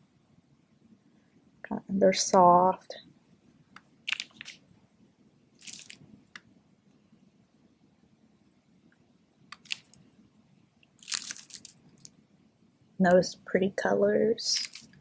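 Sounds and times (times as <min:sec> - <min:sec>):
plastic bags crinkling: 0:05.6 - 0:06.0, 0:09.6 - 0:10.0, 0:11.0 - 0:12.1, 0:14.6 - 0:15.0.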